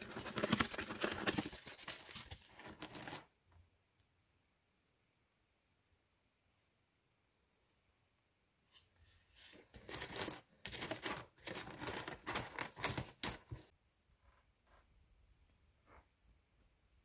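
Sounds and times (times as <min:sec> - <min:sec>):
nuts and bolts clinking: 0:09.7 - 0:13.7.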